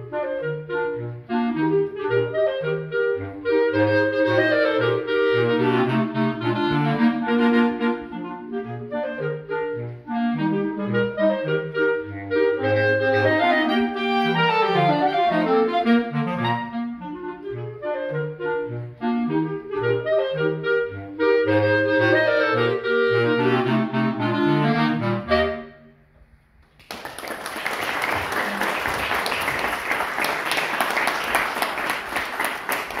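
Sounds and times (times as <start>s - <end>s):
clarinet quartet playing: 0.0s - 26.0s
audience applauding: 26.7s - 33.0s.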